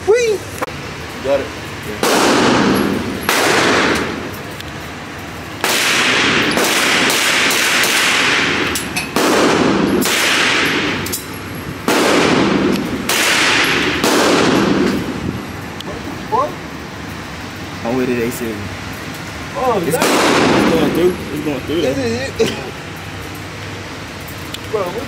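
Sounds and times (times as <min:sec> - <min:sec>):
pistol shots echoing: 0:02.0 - 0:04.3, 0:05.6 - 0:11.2, 0:11.8 - 0:15.2, 0:20.0 - 0:21.0.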